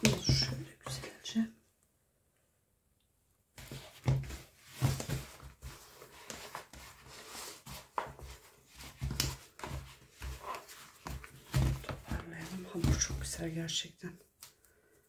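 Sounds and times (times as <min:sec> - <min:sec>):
hands kneading dough: 0:03.5 - 0:13.6.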